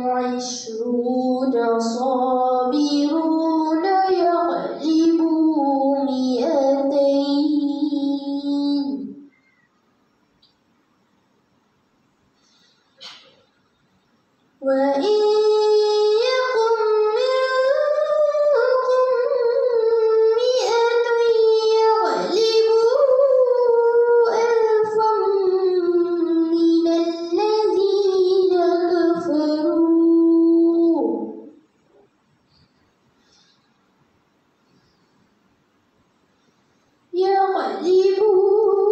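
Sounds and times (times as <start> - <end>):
girl chanting melodically: 0.0 - 9.3, 14.6 - 31.6, 37.1 - 38.9.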